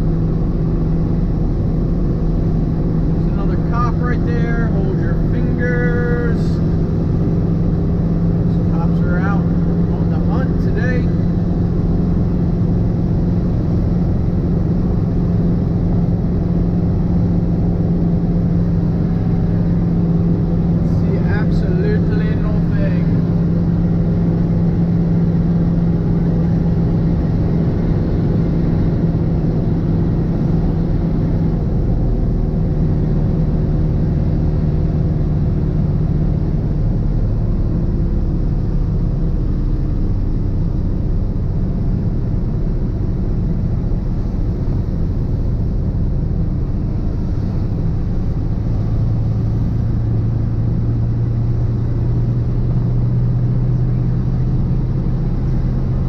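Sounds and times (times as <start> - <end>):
truck diesel engine running: 0.0 - 56.0.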